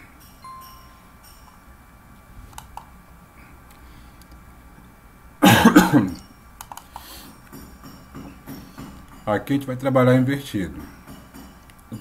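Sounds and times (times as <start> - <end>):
soft clicks: 2.5 - 2.9, 6.6 - 7.1
man coughing: 5.4 - 6.2.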